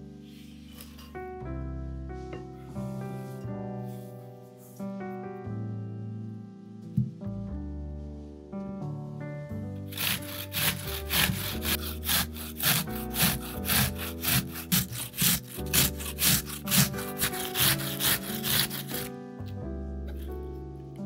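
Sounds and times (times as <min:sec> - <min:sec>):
piano music: 0:00.0 - 0:21.0
potato grating on hand grater: 0:09.9 - 0:19.1.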